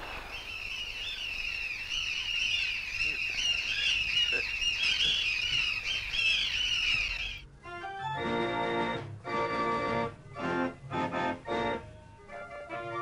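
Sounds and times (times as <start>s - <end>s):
seagulls crying: 0.0s - 7.5s.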